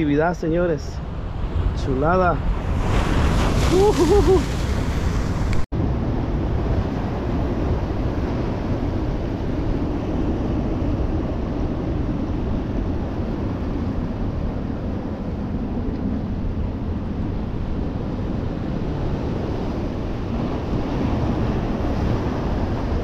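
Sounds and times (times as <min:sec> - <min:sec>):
wind on microphone: 0:00.0 - 0:23.0
surf breaking on rocks: 0:02.8 - 0:05.6.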